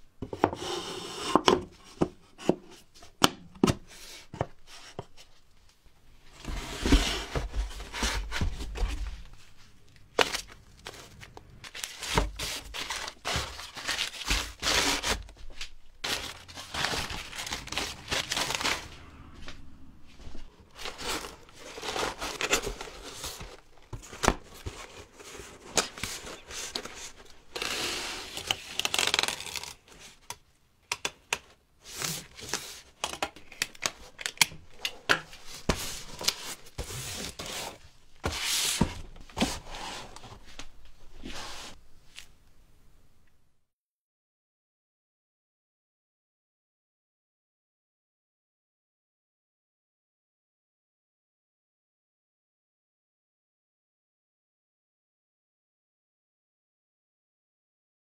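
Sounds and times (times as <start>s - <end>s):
paper rustling and tearing: 10.1s - 19.1s, 20.7s - 30.2s, 35.4s - 40.6s.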